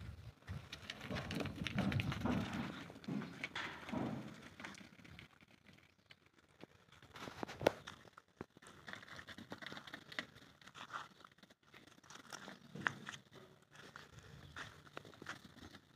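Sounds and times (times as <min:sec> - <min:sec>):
footsteps crunching on dry straw: 0:10.7 - 0:15.6.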